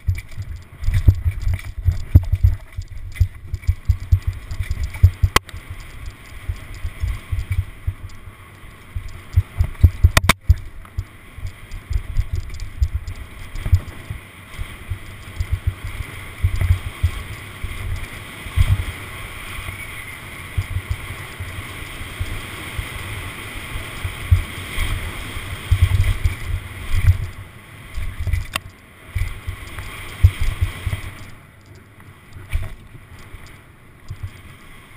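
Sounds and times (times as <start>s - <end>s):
bike knocks and rattles: 0.0s - 8.1s, 8.9s - 14.1s, 14.8s - 18.8s, 25.7s - 27.3s
wind and tyre noise: 0.0s - 34.9s
sharp click: 9.0s - 14.0s.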